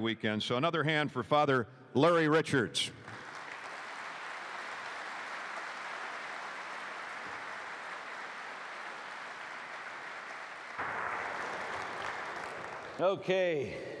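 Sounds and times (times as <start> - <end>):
audience applauding: 3.0 - 13.6.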